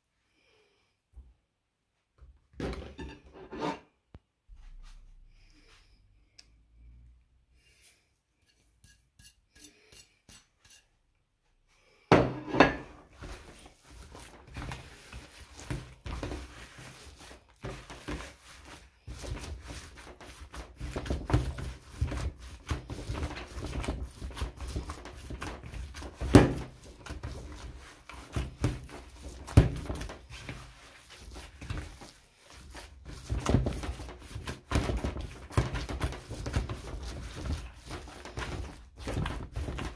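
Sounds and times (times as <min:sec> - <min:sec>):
wet squishing of meat kneaded: 0:13.0 - 0:39.9.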